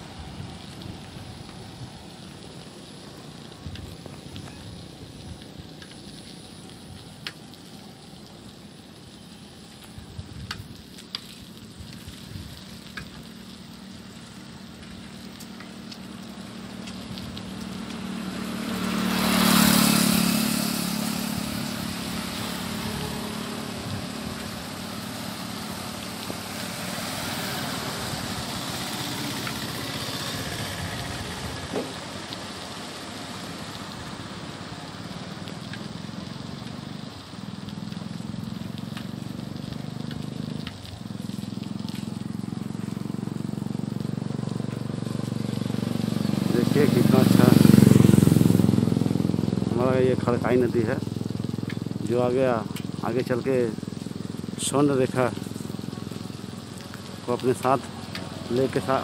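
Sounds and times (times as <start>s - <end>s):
wind and tyre noise: 0.0s - 59.0s
vehicle passing close by: 14.0s - 59.0s.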